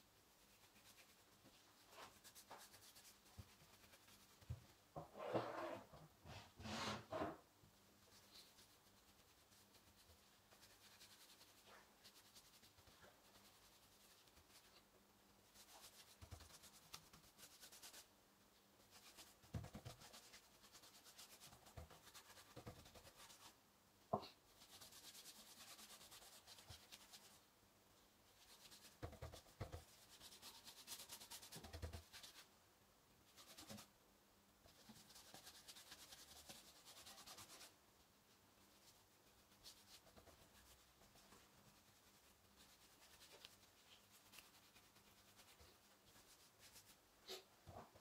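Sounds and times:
paintbrush scrubbing on wood: 0:34.7 - 0:37.7.

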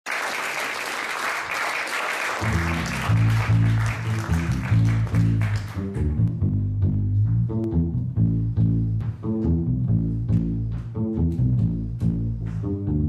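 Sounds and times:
audience applause: 0:00.0 - 0:06.2
bass guitar riff: 0:02.4 - 0:13.0.

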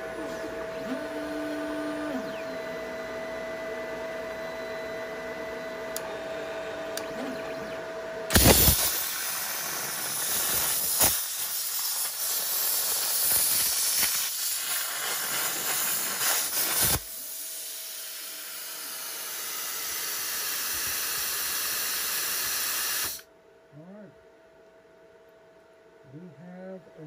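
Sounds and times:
cooling air hiss: 0:08.3 - 0:23.2
plasma cutter hissing and crackling: 0:08.3 - 0:23.2.

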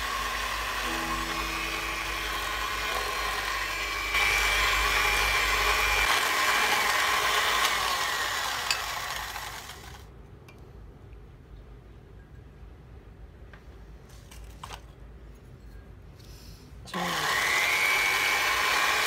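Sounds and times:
electric hand mixer whirring: 0:00.0 - 0:10.1, 0:16.9 - 0:19.0.

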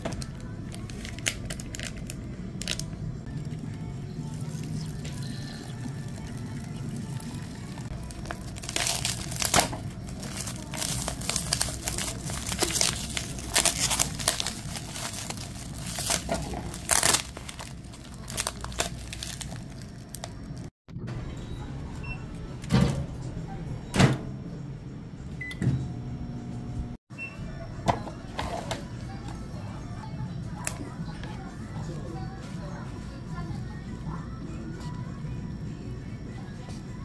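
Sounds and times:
plastic wrapper crinkling and tearing: 0:00.0 - 0:20.7.

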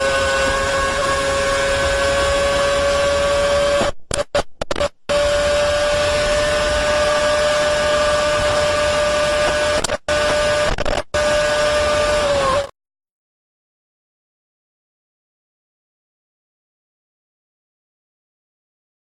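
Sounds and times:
racing car engine at high revs: 0:00.0 - 0:12.7
wind noise: 0:00.0 - 0:12.7.

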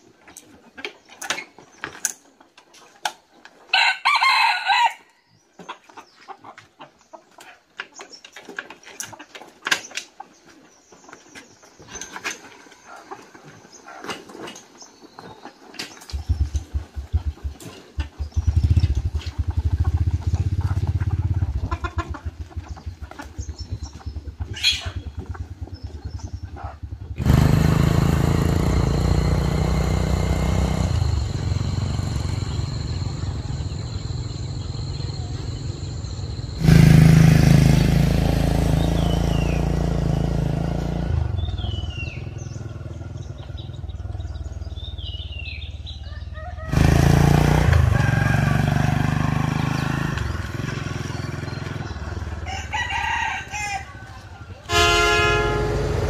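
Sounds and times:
bird chirping: 0:14.6 - 0:27.0, 0:29.1 - 0:36.8, 0:38.6 - 0:39.9, 0:41.2 - 0:46.5, 0:49.4 - 0:52.4
small motorbike engine: 0:15.8 - 0:56.0.

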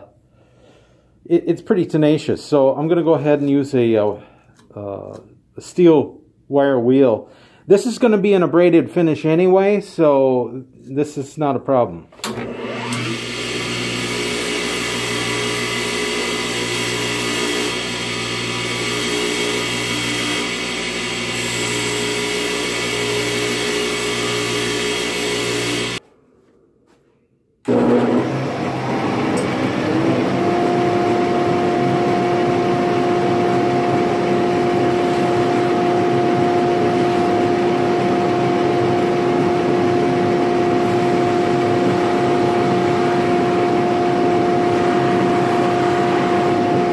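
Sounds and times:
wire wheel scrubbing metal: 0:13.9 - 0:26.0.

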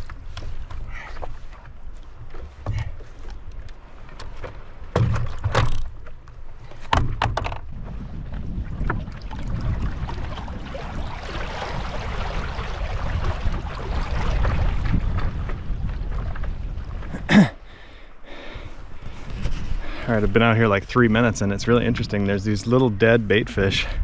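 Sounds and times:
water splashing against board: 0:00.0 - 0:17.3
sharp knocks: 0:04.9 - 0:05.9, 0:06.9 - 0:07.6
wind rumble on microphone: 0:06.6 - 0:17.6, 0:18.7 - 0:24.0.

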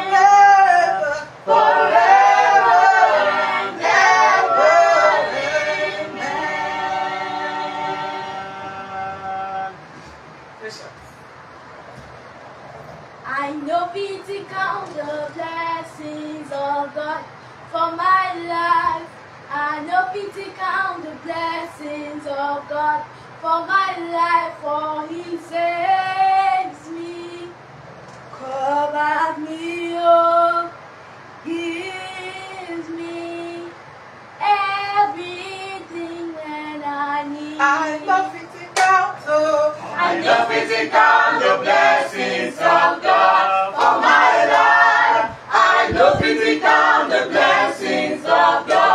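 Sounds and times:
group of voices singing: 0:00.0 - 0:10.0, 0:37.2 - 0:48.9
girl singing: 0:13.3 - 0:27.6, 0:34.4 - 0:39.8.

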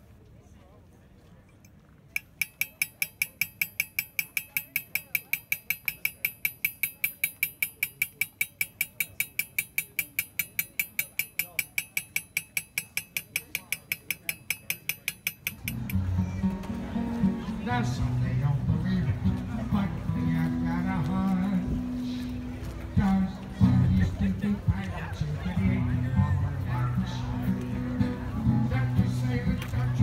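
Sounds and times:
hammer tapping chisel into metal: 0:02.2 - 0:16.1.

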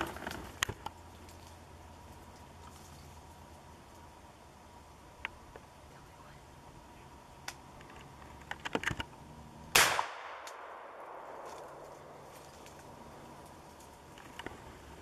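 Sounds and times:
shotgun shot: 0:09.7 - 0:11.9.

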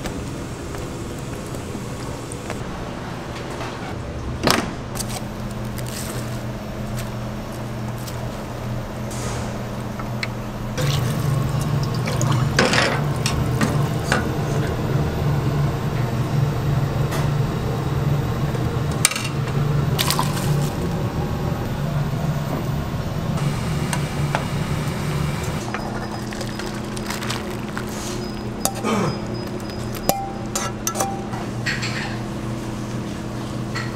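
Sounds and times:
low hum: 0:05.2 - 0:31.7
sauce bubbling: 0:25.6 - 0:30.0.

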